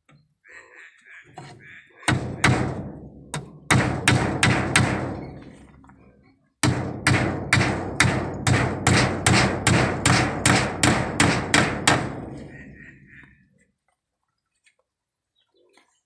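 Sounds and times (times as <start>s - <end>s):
hammer striking bamboo slats: 2.1s - 5.6s, 6.6s - 12.5s.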